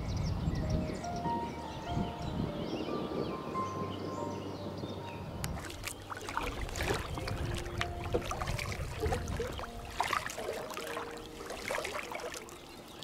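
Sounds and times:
paddle dipping into water: 5.4 - 13.0
water splashing and dripping: 5.4 - 13.0.

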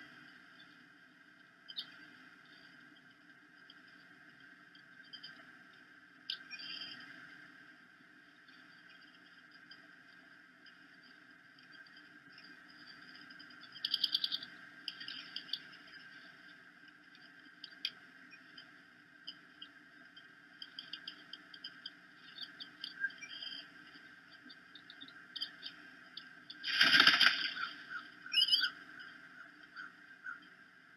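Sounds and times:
low hum: 0.0 - 30.9
eagle chirps and squeaks: 27.6 - 28.8.

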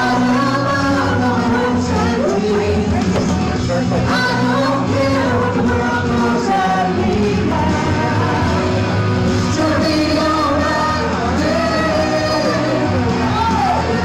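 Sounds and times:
women singing into microphones: 0.0 - 14.0.

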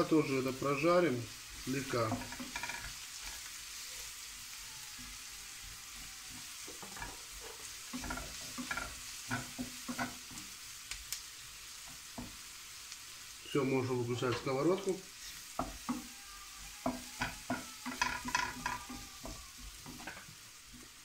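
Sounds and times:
onion sizzling in a frying pan: 0.0 - 21.0
spatula scraping and knocking pan: 1.5 - 4.4, 5.9 - 10.6, 11.7 - 12.6, 15.2 - 16.1, 16.8 - 21.0.

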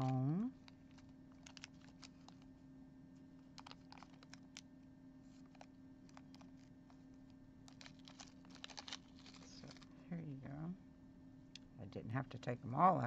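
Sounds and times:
plastic bag crinkling: 0.0 - 2.5, 3.4 - 4.7, 5.3 - 7.0, 7.6 - 10.0
low hum: 0.0 - 13.0.

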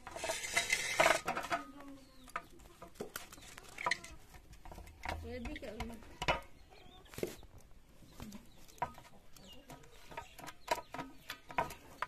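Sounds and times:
dough scraping in metal bowl: 0.0 - 1.6.

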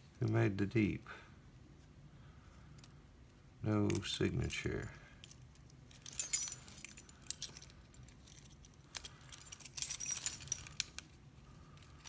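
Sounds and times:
metal keys jangling: 3.9 - 11.1.

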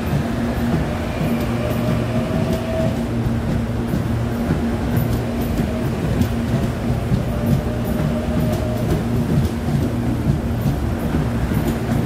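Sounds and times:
train motor hum: 0.0 - 12.0
train wheels rumbling on rail: 0.0 - 12.0.

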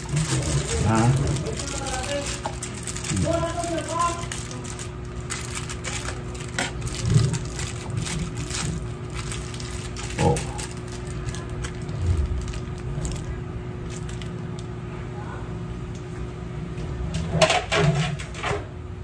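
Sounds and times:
aluminium foil crinkling: 0.0 - 14.7.

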